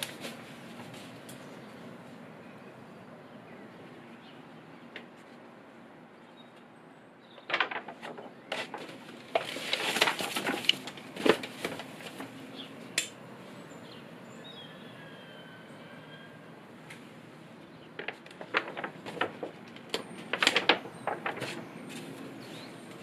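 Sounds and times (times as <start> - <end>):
notebook pages turning: 7.4 - 12.4, 18.0 - 22.3.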